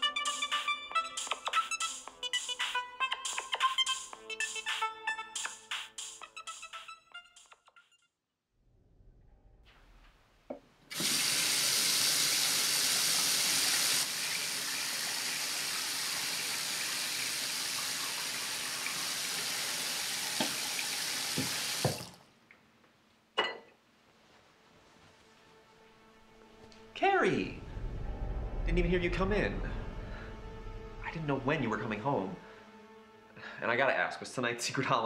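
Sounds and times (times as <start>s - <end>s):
sink tap running: 10.9s - 22.2s.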